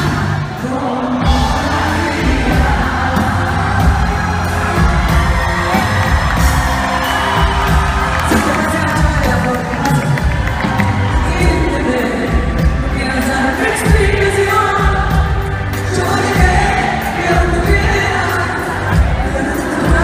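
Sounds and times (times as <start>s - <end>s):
woman singing: 0.0s - 6.2s, 8.3s - 20.0s
live band playing a ballad: 0.0s - 20.0s
steady drum beat: 1.2s - 20.0s
crowd cheering and whooping: 2.7s - 14.0s, 15.9s - 20.0s.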